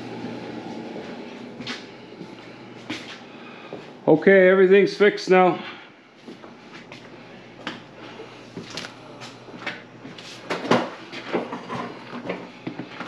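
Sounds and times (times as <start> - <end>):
things handled in closet: 8.5 - 13.0.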